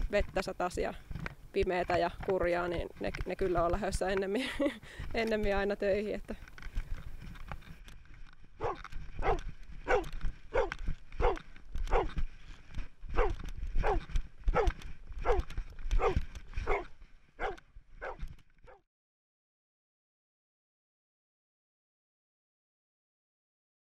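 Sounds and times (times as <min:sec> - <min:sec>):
low rumble of wind: 0:00.0 - 0:18.8
dog barking: 0:08.6 - 0:12.1, 0:13.2 - 0:15.4, 0:16.0 - 0:18.8.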